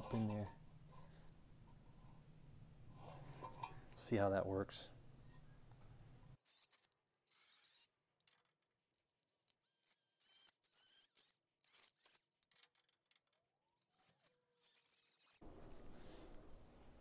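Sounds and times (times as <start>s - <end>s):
rotary tool cutting metal whining: 6.4s - 15.4s.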